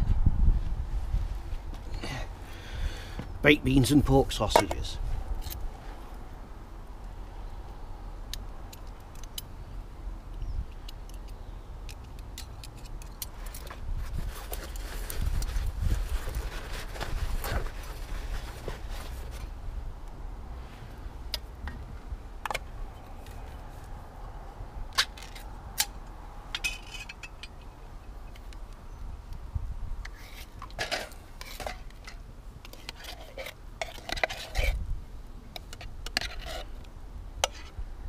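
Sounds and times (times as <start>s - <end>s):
metal spoon clinking and scraping: 32.6s - 34.8s, 35.6s - 36.7s.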